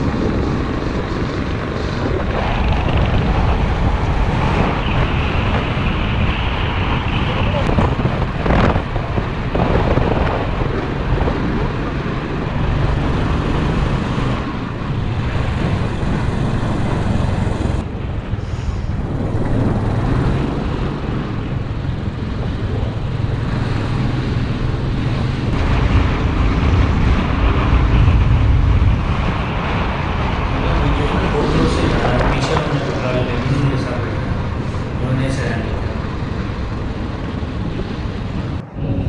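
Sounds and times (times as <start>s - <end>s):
wind noise on microphone: 0.0s - 39.0s.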